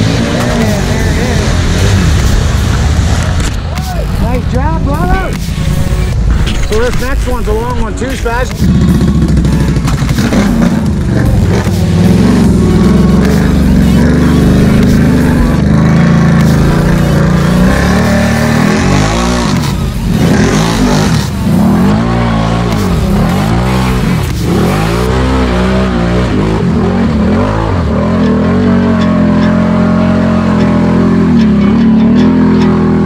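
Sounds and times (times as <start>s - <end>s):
mud and water splashing: 0.0s - 3.7s
atv engine revving: 0.0s - 33.0s.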